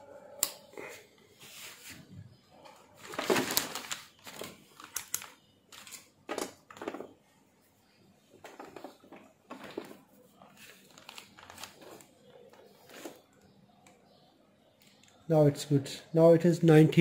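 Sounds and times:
faint clicks and scrapes: 8.3 - 14.0.

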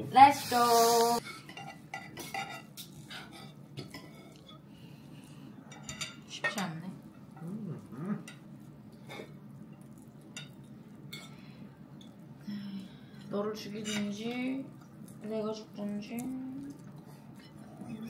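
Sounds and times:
cutlery clinking on plates: 1.3 - 4.6.

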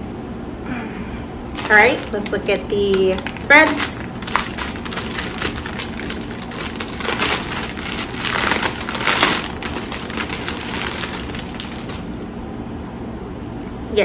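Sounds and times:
plastic bag crinkling: 1.6 - 12.2.

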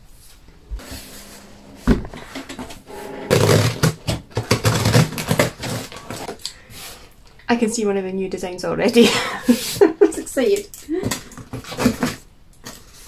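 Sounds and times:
cardboard and tape tearing: 3.3 - 6.4, 11.4 - 13.0.

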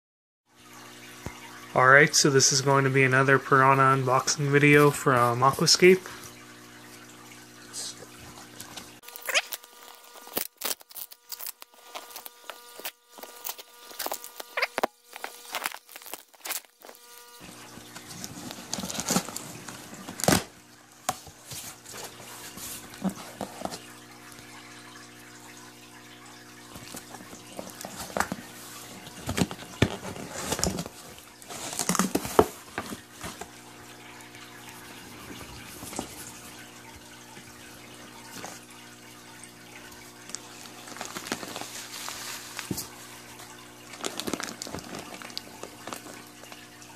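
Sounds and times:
blade slicing packing tape: 9.0 - 17.0
cardboard box being opened: 9.0 - 17.0, 18.0 - 20.5, 29.2 - 33.4.

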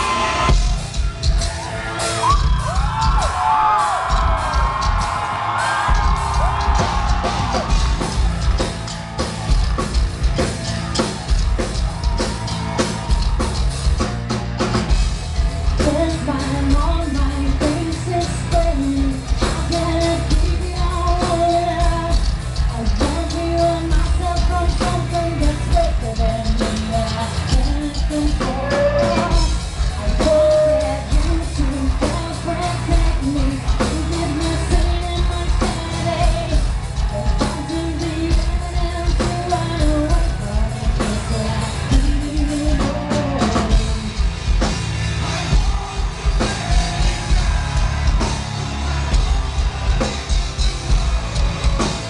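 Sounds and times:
live metal band playing: 0.0 - 52.0
woman singing lead vocal: 15.7 - 44.4.

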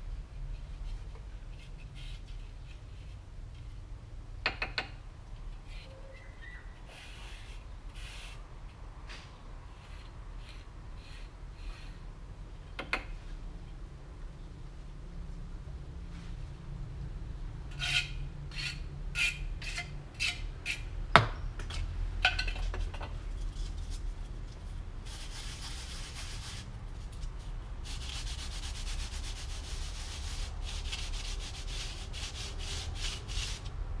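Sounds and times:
tool scraping on cement: 9.1 - 12.0, 17.8 - 20.9, 27.8 - 33.8.

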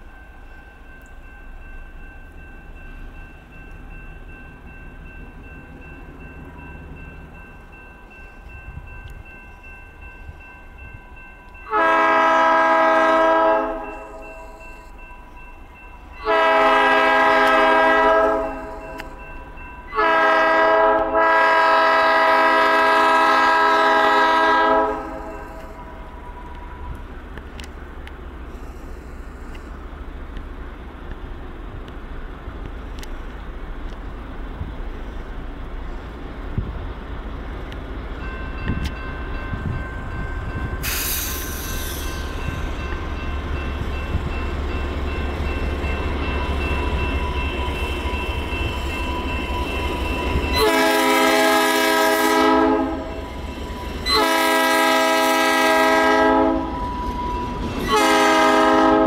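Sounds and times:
diesel locomotive engine rumble: 0.0 - 59.0
locomotive air horn blasts: 11.7 - 14.3, 16.2 - 19.1, 19.9 - 26.0, 50.5 - 53.2, 54.0 - 56.9, 57.8 - 59.0
short hiss: 40.8 - 42.3.

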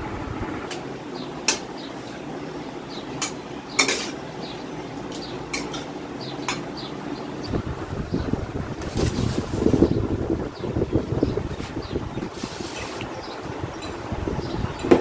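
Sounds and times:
spatula scraping a wok: 11.6 - 13.1.

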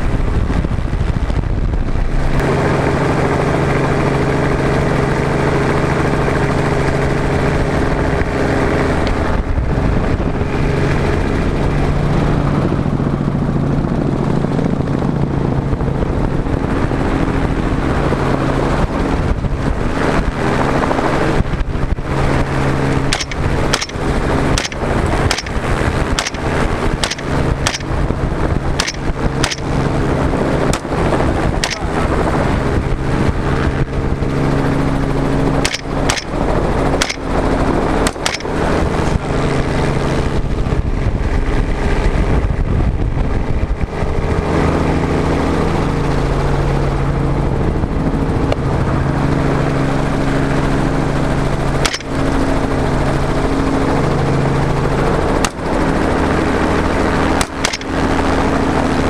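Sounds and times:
wind rushing: 0.0 - 3.7, 7.4 - 45.4
helicopter droning: 0.0 - 59.0
rifle shots: 23.1 - 28.1, 28.8 - 30.1, 30.7 - 32.2, 35.6 - 37.4, 38.0 - 38.8, 51.8 - 52.3, 57.4 - 58.2.

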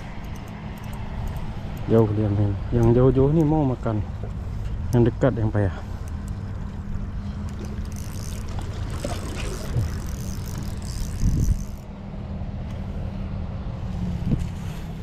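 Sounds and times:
low engine hum: 0.0 - 15.0
wind: 0.0 - 15.0
water noise: 5.8 - 11.9.

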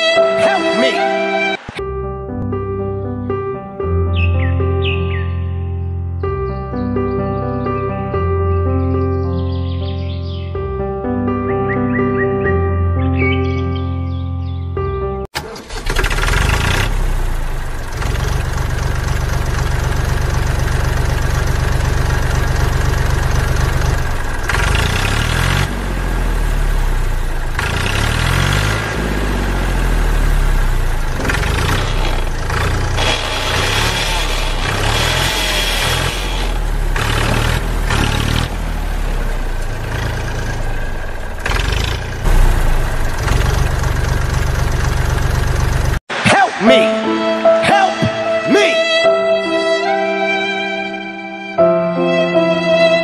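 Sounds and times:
tractor engine idling and revving: 15.3 - 46.1.

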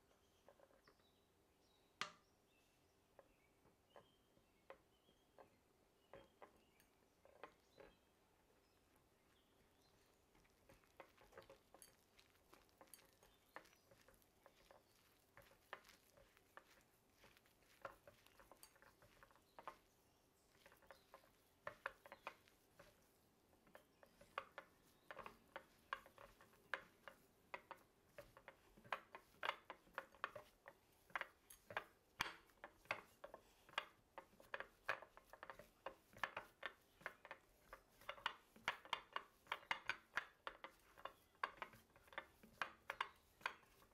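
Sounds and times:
utensil clicking against a bowl: 10.3 - 19.9, 20.5 - 43.9.

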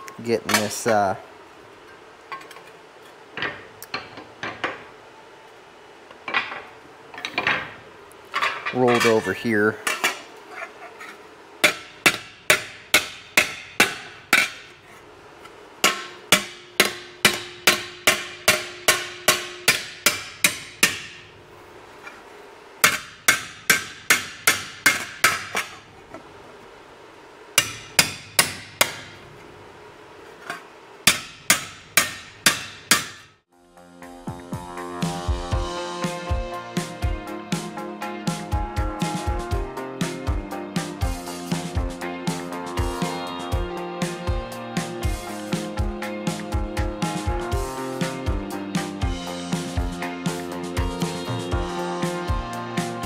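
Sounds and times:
hammer striking sheet metal: 15.8 - 21.2.

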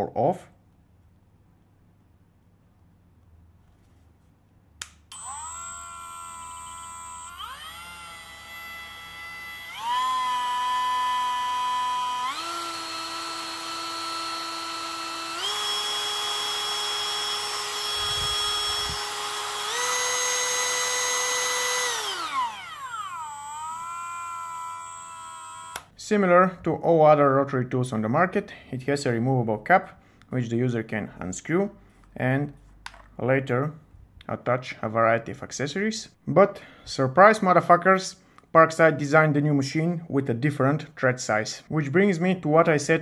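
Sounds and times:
rotary tool high whine: 5.1 - 25.9.

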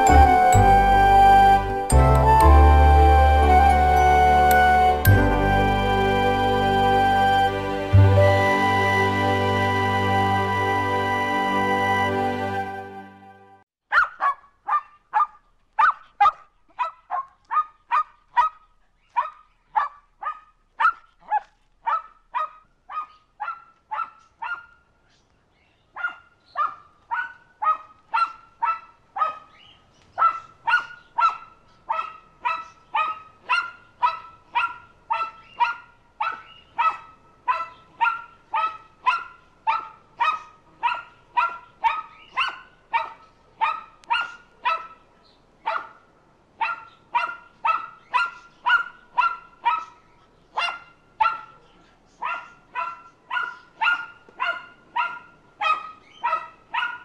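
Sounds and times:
dog barking: 13.9 - 24.8, 26.0 - 45.0, 45.6 - 57.0.

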